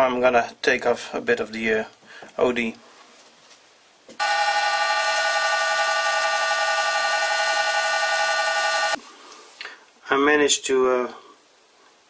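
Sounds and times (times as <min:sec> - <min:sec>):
metal lathe whining: 0:04.2 - 0:09.0.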